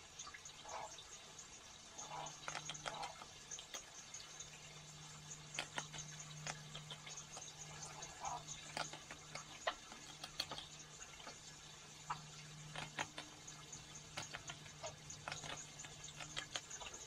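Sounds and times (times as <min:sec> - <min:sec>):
steady low hum: 0:00.0 - 0:17.0
animal eating dry food clicks: 0:02.0 - 0:11.4, 0:12.0 - 0:17.0.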